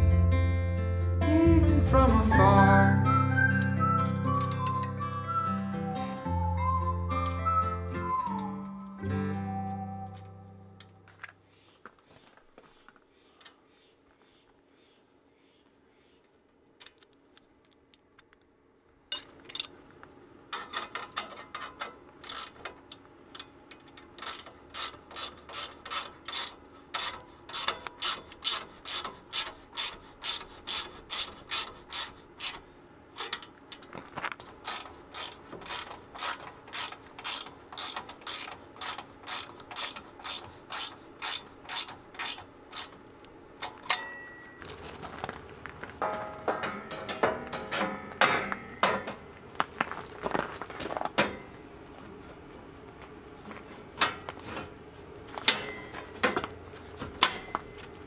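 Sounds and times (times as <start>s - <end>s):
ratchet wrench clicking: 34.6s - 42.9s.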